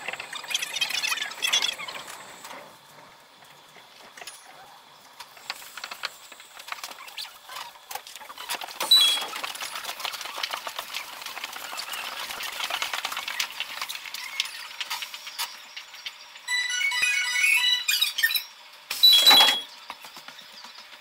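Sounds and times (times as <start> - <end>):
sped-up monorail clicks and chirps: 0.0 - 2.6, 5.0 - 21.0
sharp spike with high squeak: 16.5 - 19.7.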